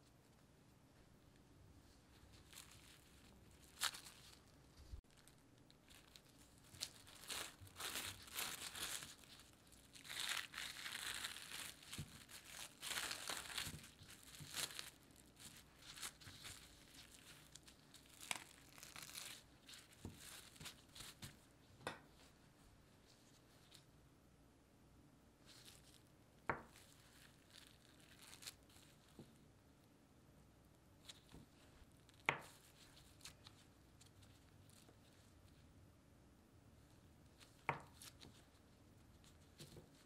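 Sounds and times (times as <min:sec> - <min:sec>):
plastic cling wrap crinkling: 0:02.1 - 0:21.5, 0:25.4 - 0:29.4, 0:37.3 - 0:40.0.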